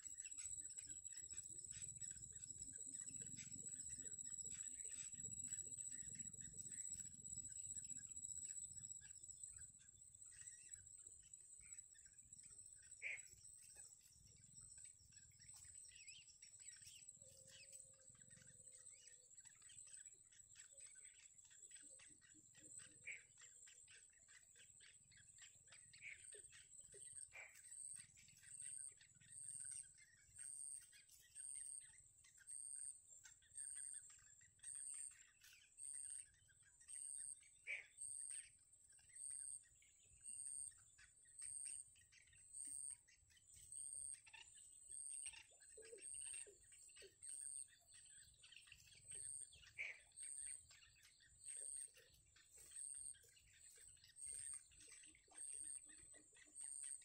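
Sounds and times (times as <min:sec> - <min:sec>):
bird chicks begging chirps: 0:24.0 - 0:57.0.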